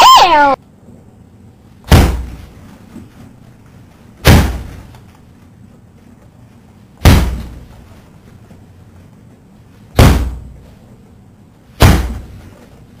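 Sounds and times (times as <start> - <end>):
loud bangs: 4.2 - 4.9, 9.9 - 10.6.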